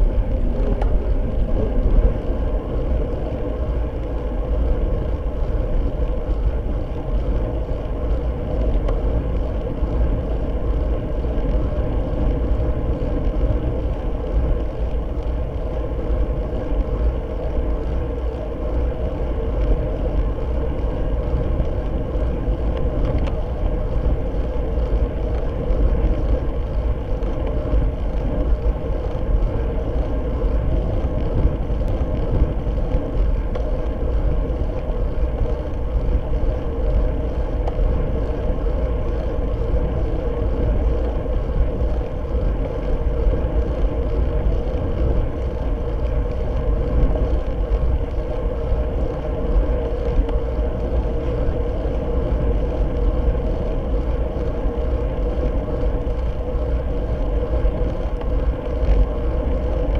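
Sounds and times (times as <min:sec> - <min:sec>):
bicycle tyre hum: 0:00.0 - 0:59.9
wind rushing over microphone: 0:00.0 - 0:59.9.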